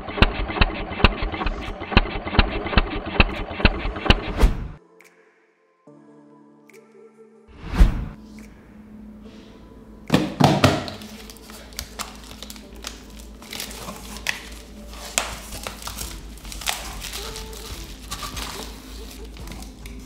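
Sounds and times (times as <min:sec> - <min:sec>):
clicks and crinkling of packing: 0:10.8 - 0:20.0.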